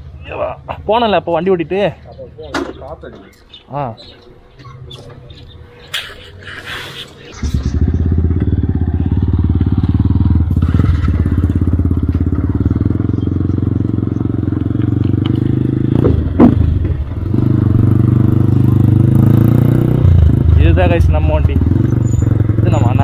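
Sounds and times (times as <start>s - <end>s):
motorcycle engine running: 7.3s - 23.0s
sharp thud: 15.9s - 17.1s.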